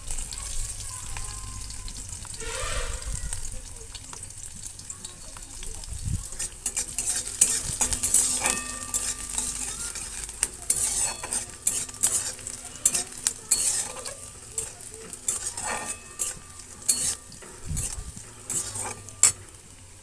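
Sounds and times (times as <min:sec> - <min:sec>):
chillies sizzling in hot oil: 0:00.0 - 0:20.0
metal spatula scraping pan: 0:02.3 - 0:03.5, 0:06.3 - 0:19.7.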